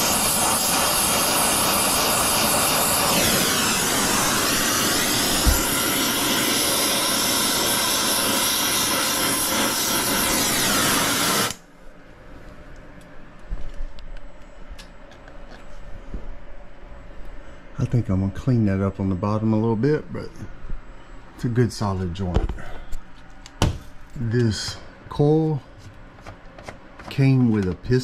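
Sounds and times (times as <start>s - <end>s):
torch flame hissing: 0.0s - 11.7s.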